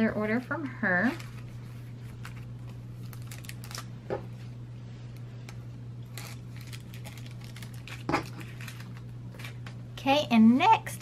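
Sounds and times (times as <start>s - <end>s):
steady low hum: 0.0s - 11.0s
plastic and paper crinkling: 0.9s - 3.9s, 6.1s - 9.7s.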